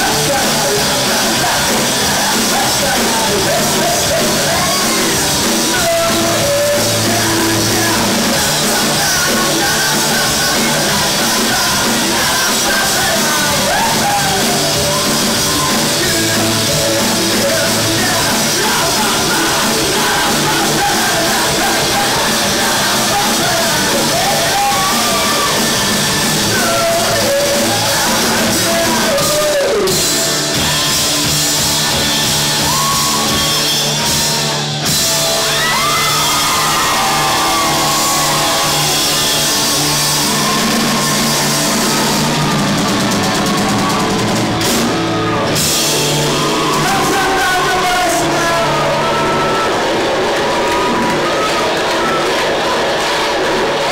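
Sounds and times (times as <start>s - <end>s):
man singing and shouting: 0.0s - 31.0s, 46.3s - 49.6s
live rock band playing: 0.0s - 53.9s.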